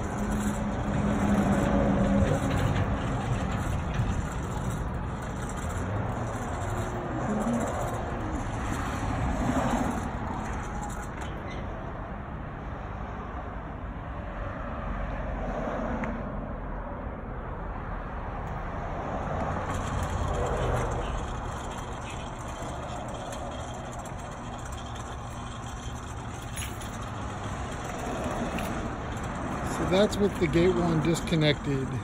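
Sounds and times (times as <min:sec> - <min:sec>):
pickup truck passing: 0:00.0 - 0:11.2, 0:18.2 - 0:32.0
road traffic going by: 0:00.0 - 0:32.0.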